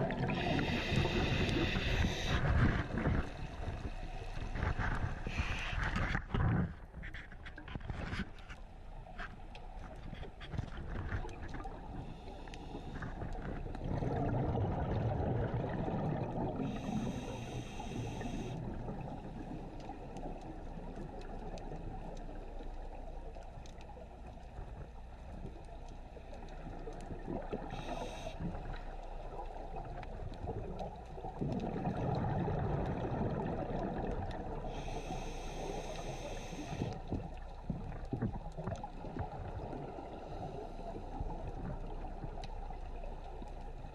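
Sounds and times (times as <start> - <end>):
regulator hiss on inhale: 0.3 - 6.2, 11.9 - 13.6, 16.6 - 18.8, 27.6 - 29.5, 34.6 - 37.3
bubbling gurgling exhalations: 13.6 - 17.2, 31.4 - 34.4.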